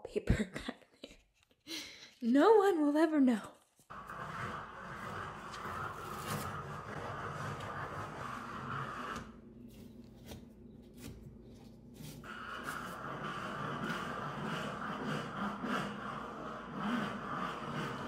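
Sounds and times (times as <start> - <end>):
wallpaper ripping and scraping: 3.8 - 18.0.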